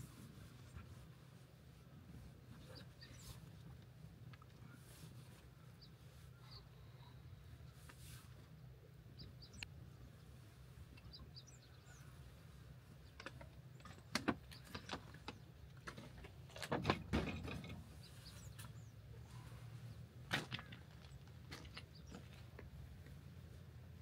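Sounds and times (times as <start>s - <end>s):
birds chirping: 2.5s - 3.6s, 8.5s - 15.8s, 17.6s - 23.7s
ladder knocks and rattles: 15.9s - 17.9s.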